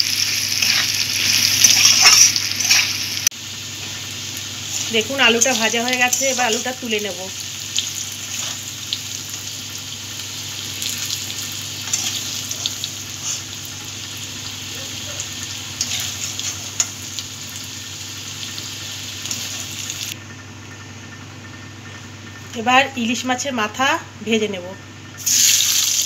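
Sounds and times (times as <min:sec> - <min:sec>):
potatoes sizzling in hot oil: 0:00.0 - 0:20.2, 0:25.2 - 0:26.0.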